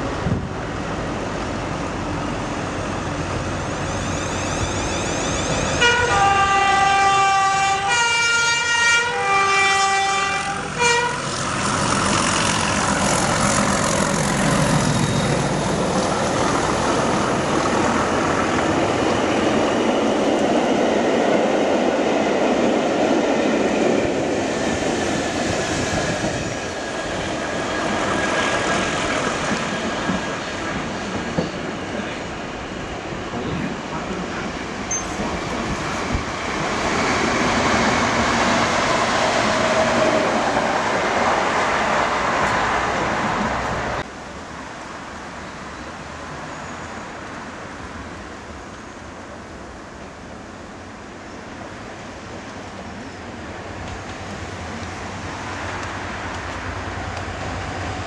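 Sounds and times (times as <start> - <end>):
train engine noise: 0.0 - 58.0
two-tone train horn: 5.8 - 11.3.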